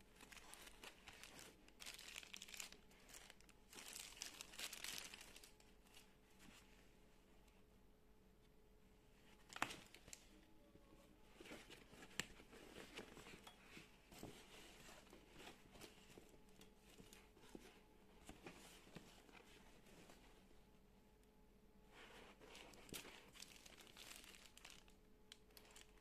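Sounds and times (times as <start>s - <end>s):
rustling of bag and plastic wrapping: 0.0s - 6.8s, 9.3s - 10.3s, 22.0s - 26.0s.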